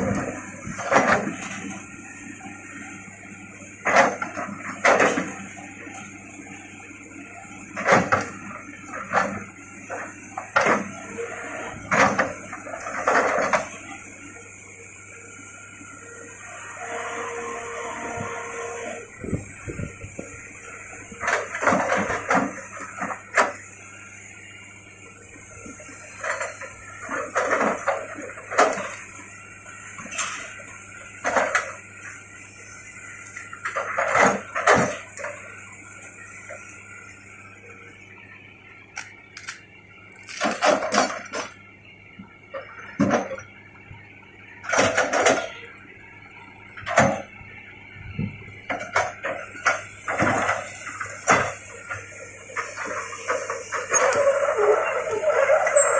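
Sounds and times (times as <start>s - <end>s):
excavator bucket clanking and crunching: 0.0s - 1.9s, 3.8s - 6.1s, 7.6s - 14.0s, 21.0s - 23.6s, 25.8s - 29.0s, 33.5s - 35.4s, 40.2s - 41.6s, 42.6s - 43.5s, 44.6s - 45.6s, 46.8s - 47.3s, 48.6s - 55.9s
diesel engine running: 0.0s - 55.9s.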